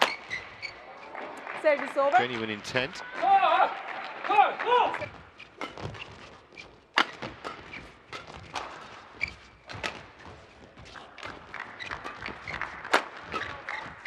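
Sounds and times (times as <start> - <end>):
rackets hitting shuttlecock: 0.0 - 0.6, 5.0 - 10.4, 11.2 - 14.0.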